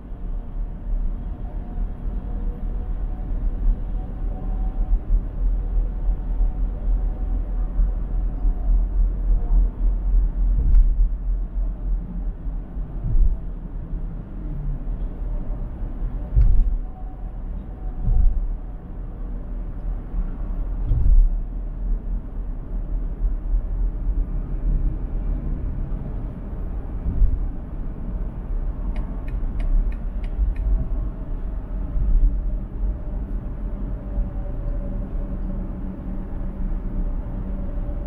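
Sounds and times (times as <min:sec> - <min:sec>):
car road noise rumble: 0:00.0 - 0:38.0
light ticks: 0:28.9 - 0:30.7.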